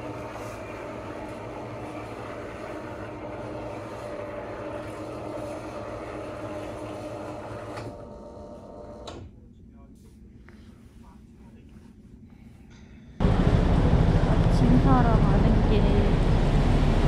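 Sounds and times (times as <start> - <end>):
motorised roller blind whirring: 0.0 - 9.2.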